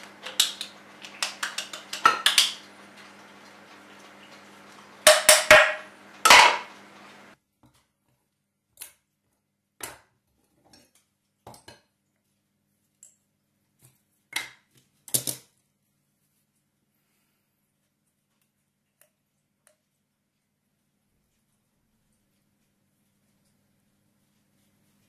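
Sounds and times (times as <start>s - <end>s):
faint steady hum: 0.0s - 7.4s.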